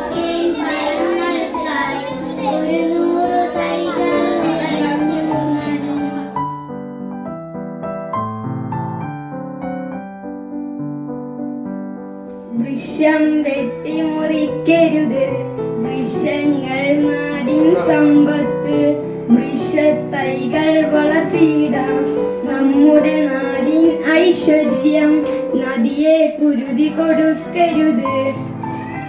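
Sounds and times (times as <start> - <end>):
boy singing into microphone: 0.0 - 6.4, 12.6 - 28.4
electric keyboard: 0.0 - 29.0.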